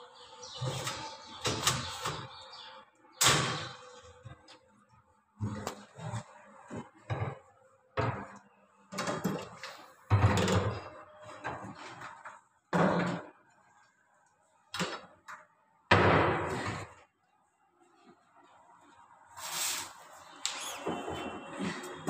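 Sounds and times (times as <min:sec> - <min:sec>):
cabinet doors banging shut: 0:15.9 - 0:16.6.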